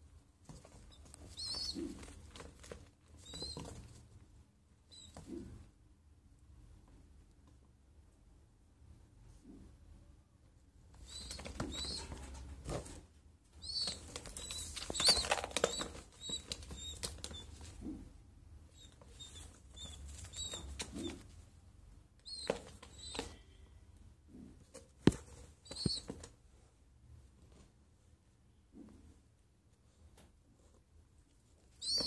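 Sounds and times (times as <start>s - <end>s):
pigeons flapping wings in a box: 13.8s - 17.5s.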